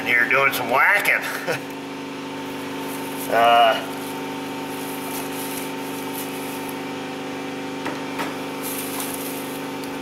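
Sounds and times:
steady machine hum: 0.0s - 10.0s
dry grass rustling and crackling: 2.7s - 6.8s, 8.6s - 10.0s.

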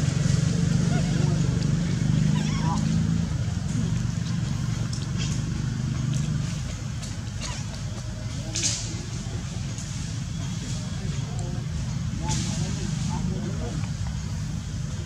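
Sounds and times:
engine humming: 0.0s - 15.0s.

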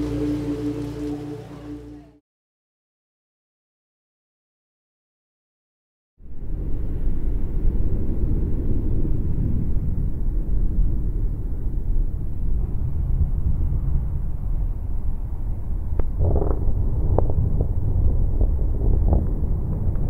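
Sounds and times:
loud low rumble: 0.0s - 2.2s, 6.2s - 20.0s.

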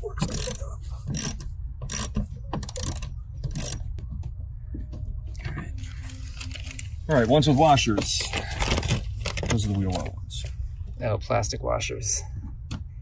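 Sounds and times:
ratchet wrench clicking: 0.2s - 3.8s.

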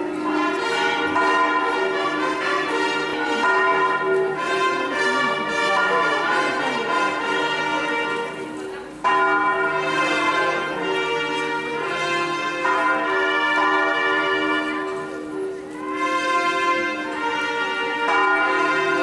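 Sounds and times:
church bells pealing: 0.0s - 19.0s.

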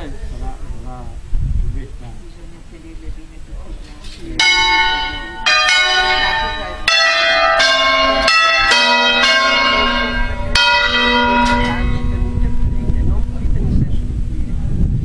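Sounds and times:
church bells ringing: 4.4s - 14.2s.

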